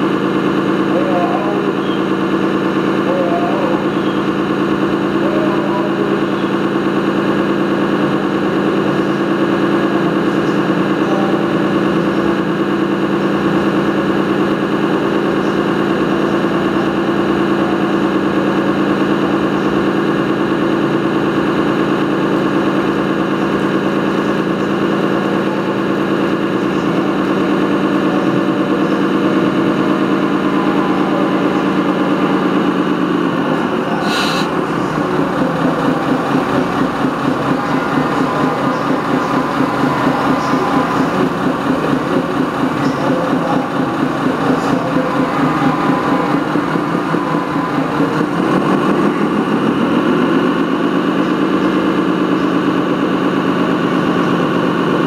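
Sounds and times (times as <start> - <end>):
model vehicle engine drone: 0.0 - 55.0
short hiss: 34.0 - 34.5.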